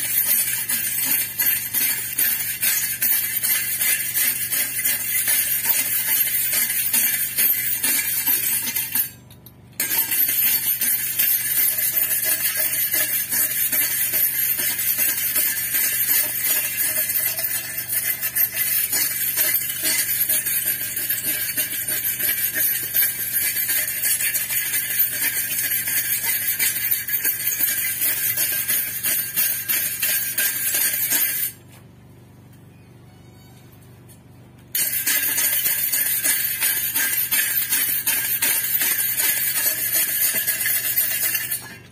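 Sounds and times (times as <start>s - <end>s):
wire brush scrubbing steel: 9.8s - 31.6s, 34.8s - 41.9s.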